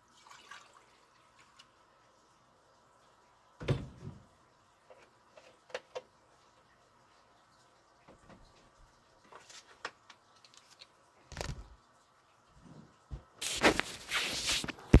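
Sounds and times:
phone rubbing against fabric: 13.4 - 15.0.

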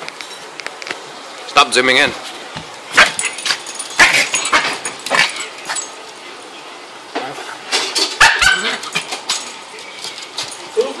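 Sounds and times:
small dog barking sharply: 8.2 - 8.8.

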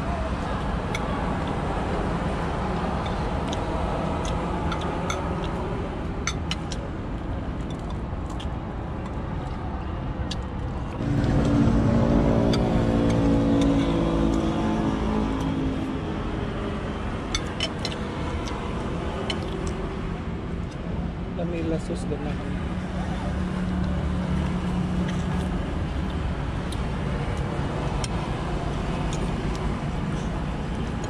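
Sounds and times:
outdoor traffic hum: 0.0 - 31.0
vehicle engine running: 10.9 - 15.5.

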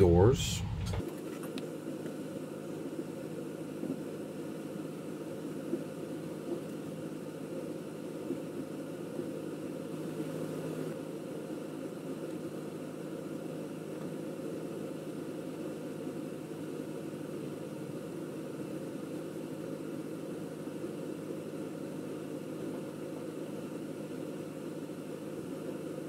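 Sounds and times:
appliance machine hum: 0.0 - 1.1.

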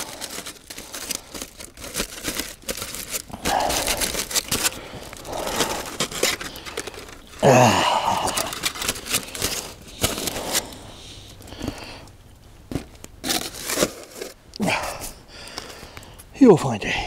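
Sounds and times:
crinkling and crunching handling: 0.0 - 16.4
low vocal grunt: 7.4 - 8.5.

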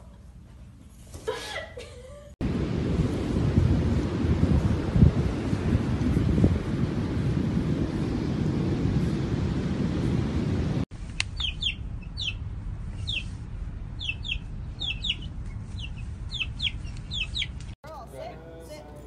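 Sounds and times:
wind buffeting microphone: 2.4 - 17.8
chick peeping: 11.2 - 12.4, 13.0 - 13.3, 14.0 - 17.7.

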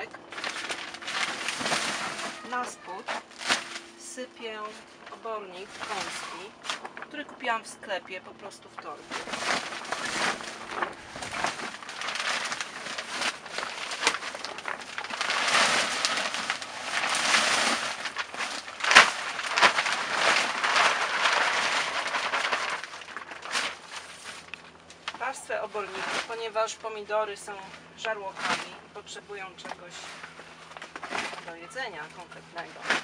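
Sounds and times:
manure pouring from plastic sack: 0.3 - 2.7, 9.1 - 24.5.

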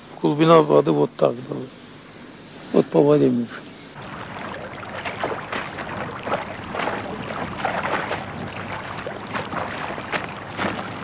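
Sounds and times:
water splashing and sloshing: 3.9 - 11.0.

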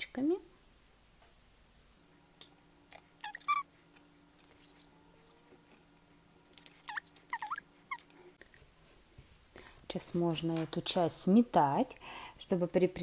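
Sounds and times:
faint steady hum: 0.0 - 13.0
animal chirping calls: 3.2 - 3.7, 6.8 - 8.1.

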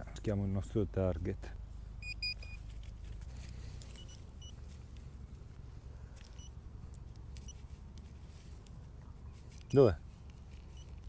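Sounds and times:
low steady rumble: 0.0 - 11.0
metal detector beeps: 2.0 - 2.6, 3.8 - 4.6, 6.2 - 6.6, 7.4 - 7.6, 9.6 - 9.9, 10.6 - 11.0.

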